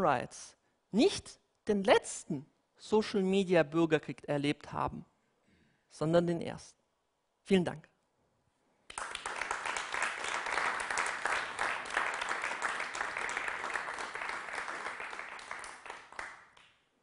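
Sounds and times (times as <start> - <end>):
audience applauding: 8.9 - 16.7.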